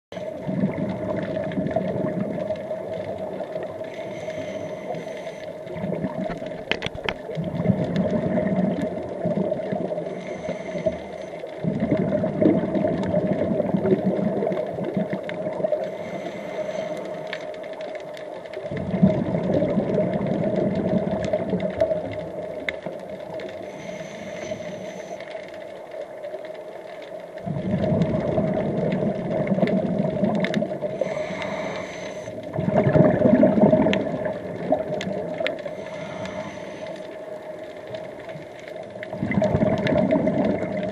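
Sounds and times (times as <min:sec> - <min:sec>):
faint hum: 0:00.1 - 0:14.2, 0:14.8 - 0:21.0, 0:21.7 - 0:40.9
exhaled bubbles rushing: 0:00.2 - 0:03.9, 0:05.6 - 0:10.2, 0:11.6 - 0:15.9, 0:18.6 - 0:23.4, 0:27.4 - 0:36.4, 0:38.0 - 0:40.9
regulator inhale hisses: 0:03.8 - 0:05.7, 0:10.0 - 0:11.5, 0:15.8 - 0:17.6, 0:23.5 - 0:25.5, 0:30.9 - 0:32.4, 0:35.6 - 0:37.3.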